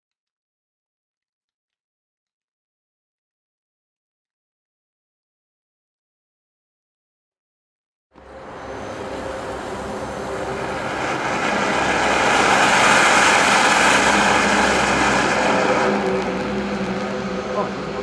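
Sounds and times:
ground fountain firework hissing: 8.3 - 18.0.

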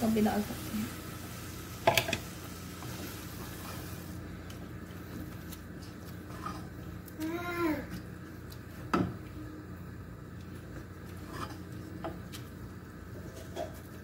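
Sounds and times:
faint sizzle in a pot: 0.0 - 14.0
wooden spoon stirring: 11.0 - 12.5.

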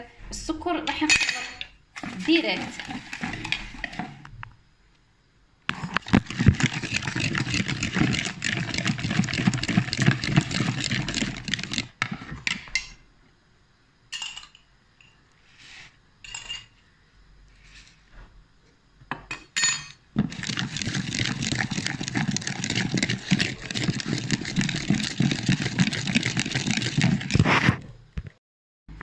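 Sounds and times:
whisk clattering against bowl: 5.7 - 12.0, 20.2 - 27.4.

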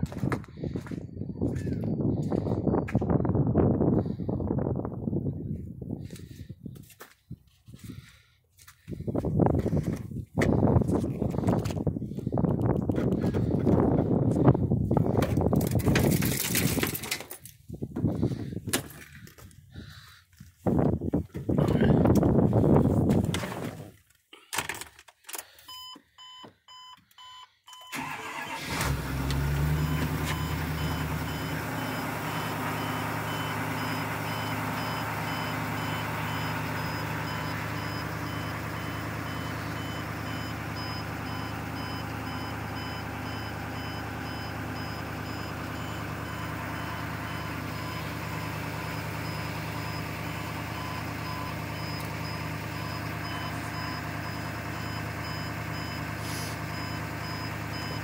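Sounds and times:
truck engine starting and idling: 7.7 - 20.2, 24.7 - 58.0
dashboard warning chime: 29.8 - 58.0.

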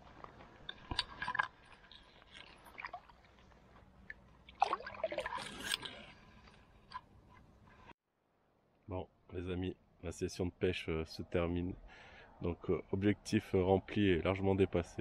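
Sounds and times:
water splashing and sloshing: 0.0 - 7.9.

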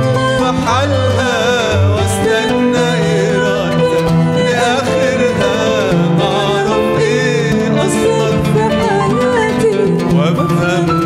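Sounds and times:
man singing a hymn: 0.0 - 11.0
plucked strings: 0.0 - 11.0
woman singing a hymn: 2.2 - 11.0.

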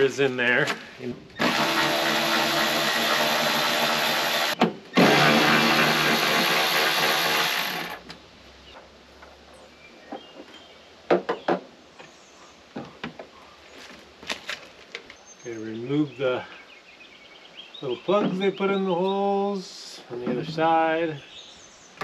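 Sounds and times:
cordless drill running: 1.4 - 8.0.

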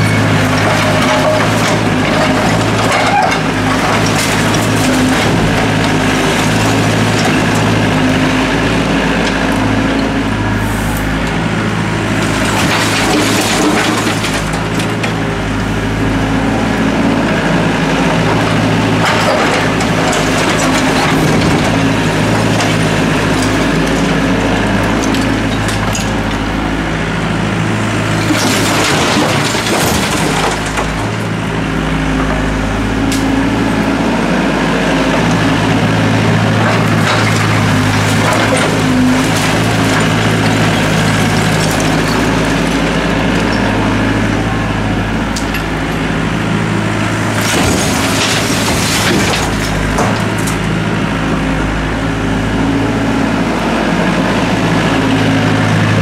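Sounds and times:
clattering debris: 0.0 - 8.2, 12.0 - 15.4, 18.1 - 26.6, 27.9 - 31.5, 36.2 - 43.9, 46.8 - 50.8
diesel engine running: 0.0 - 56.0
bucket scraping through rubble: 0.1 - 8.1, 12.1 - 15.2, 18.3 - 26.2, 28.0 - 31.3, 36.4 - 43.4, 47.1 - 50.7.

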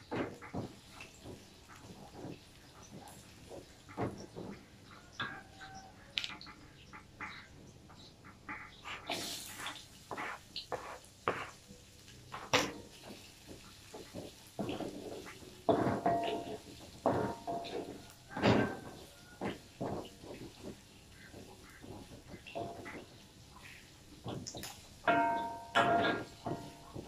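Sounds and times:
wooden spatula scraping a wok: 8.8 - 11.7, 12.3 - 27.0.

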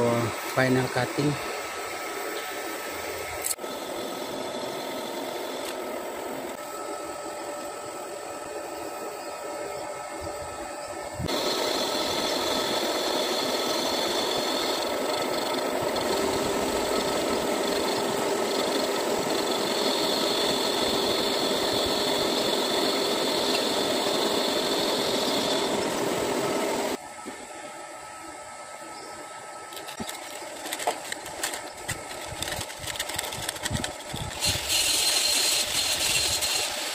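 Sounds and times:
metal lathe whining: 11.3 - 27.0, 31.4 - 36.9.

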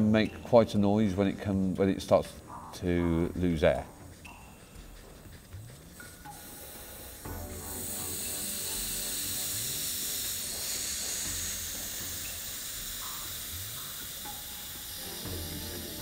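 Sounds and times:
air hissing out of valve: 6.0 - 16.0.

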